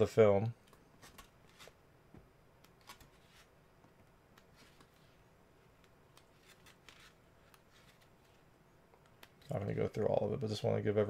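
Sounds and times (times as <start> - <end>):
paper pages rustling: 6.1 - 8.4.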